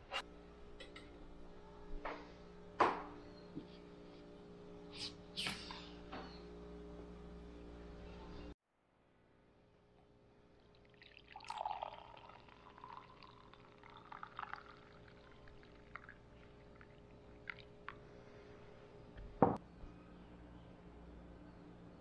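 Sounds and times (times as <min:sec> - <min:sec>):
coffee pouring into a mug: 0:10.7 - 0:18.0.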